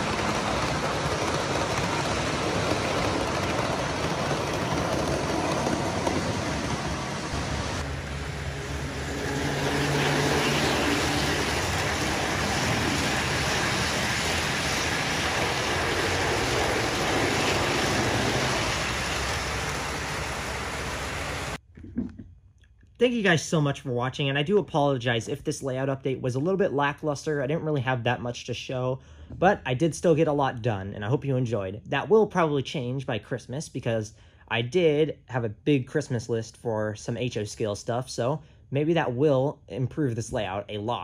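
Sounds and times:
model train wheels rumbling on rail: 0.0 - 21.6
electric motor hum: 5.9 - 21.6.

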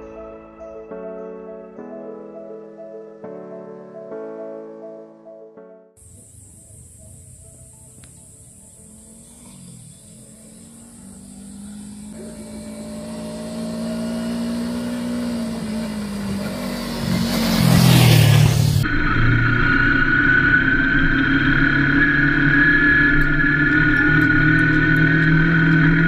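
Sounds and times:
motorcycle engine while riding: 6.0 - 26.0
motorcycle passing by: 8.8 - 26.0.

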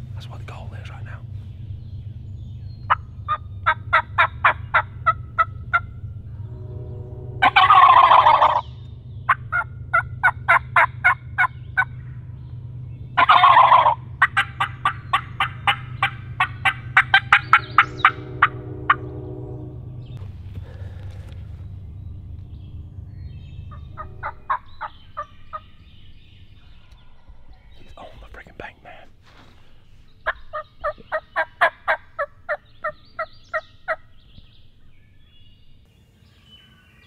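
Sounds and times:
turkey gobbling: 2.9 - 5.9, 7.4 - 8.7, 9.3 - 11.9, 13.2 - 19.0, 23.7 - 25.7, 30.2 - 34.0
turkey call cutts and yelps: 7.4 - 8.6, 13.2 - 18.2.

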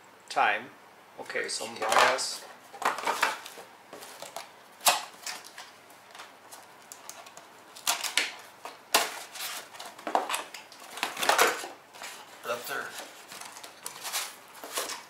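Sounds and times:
boxes clacking together: 2.8 - 6.3, 7.1 - 15.0
cardboard flaps scraping and rustling: 7.8 - 15.0.

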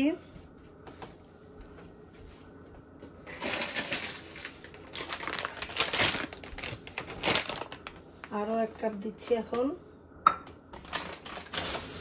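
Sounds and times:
plastic bag crinkling: 3.2 - 8.4, 10.7 - 12.0.

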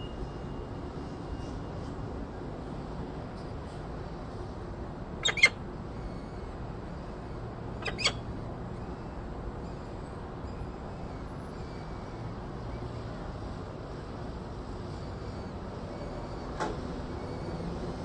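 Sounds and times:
steady background hum: 0.0 - 18.0
falcon calls: 5.2 - 5.6, 7.8 - 8.3.

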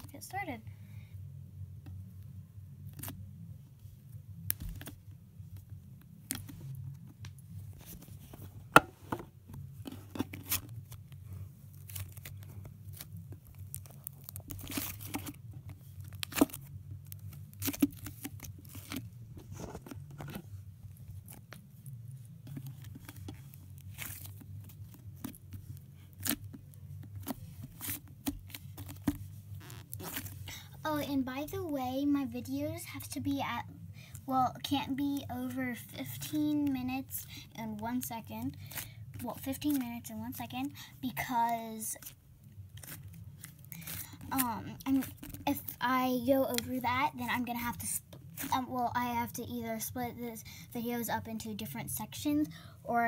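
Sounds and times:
steady low hum: 0.0 - 53.0
slime crackling and popping: 11.7 - 19.1.

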